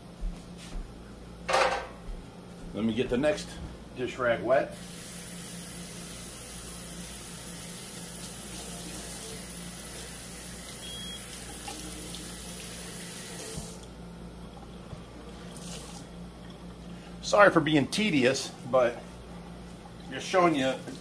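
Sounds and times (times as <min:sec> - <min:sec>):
faucet running water into sink: 0:04.8 - 0:13.8, 0:15.5 - 0:16.1.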